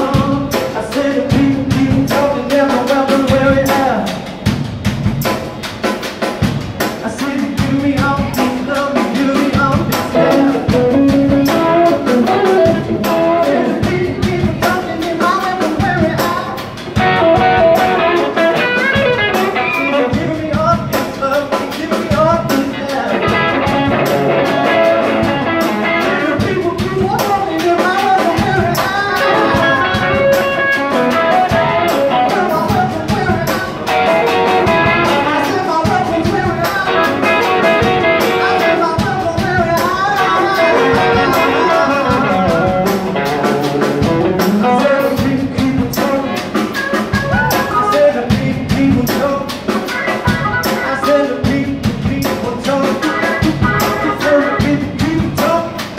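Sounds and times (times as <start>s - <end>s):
man singing: 0.0s - 4.4s, 6.9s - 55.9s
drum kit: 0.0s - 55.9s
electric guitars: 0.0s - 55.9s.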